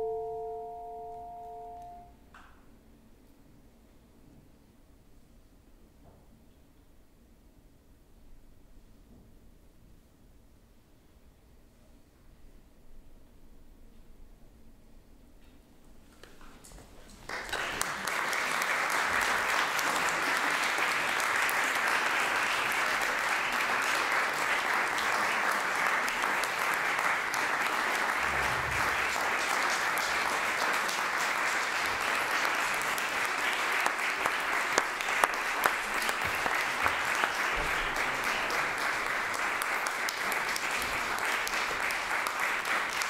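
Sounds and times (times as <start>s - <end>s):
audience applause: 17.2s - 43.0s.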